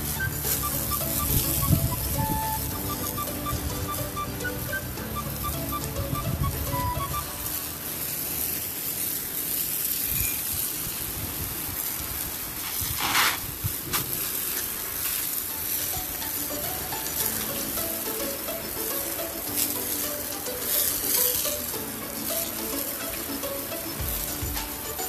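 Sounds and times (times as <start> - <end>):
water splashing on floor tiles: 7.3 - 25.0.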